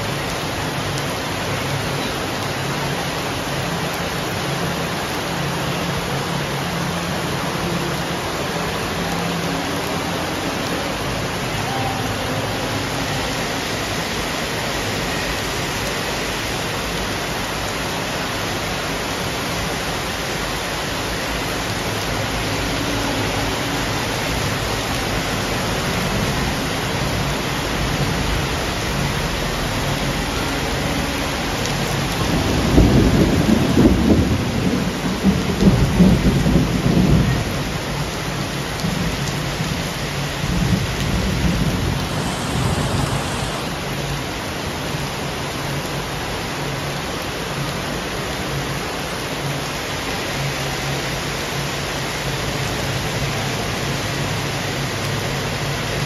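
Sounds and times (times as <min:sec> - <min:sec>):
heavy rain on pavement: 0:00.0 - 0:56.0
low rumble of thunder: 0:22.1 - 0:44.0.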